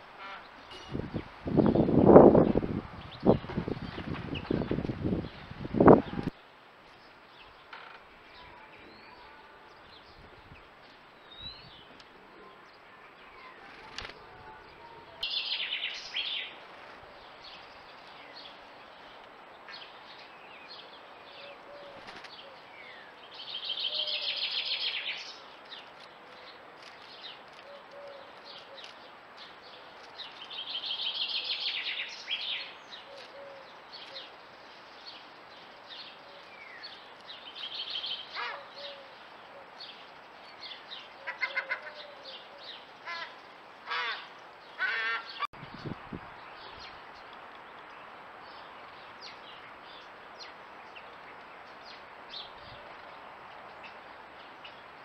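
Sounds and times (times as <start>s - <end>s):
birds singing: 0.2s - 55.0s
bird chirps and clicks: 25.6s - 30.6s.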